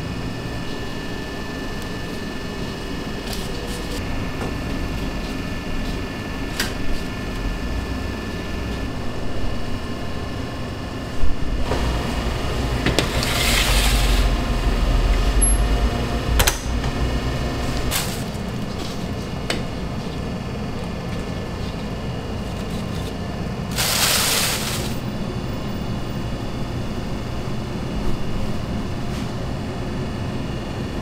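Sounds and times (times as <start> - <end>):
bakery machinery hum: 0.0 - 31.0
trays scraping into rack: 11.7 - 18.5.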